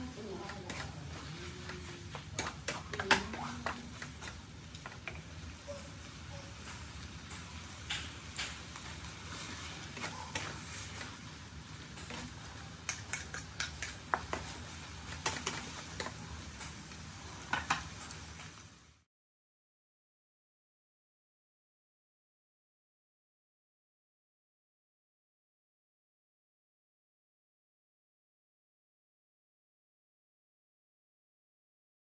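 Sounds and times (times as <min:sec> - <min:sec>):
noodles sizzling in a pan: 0:00.0 - 0:19.1
spatula clacking and scraping pan: 0:00.1 - 0:18.2.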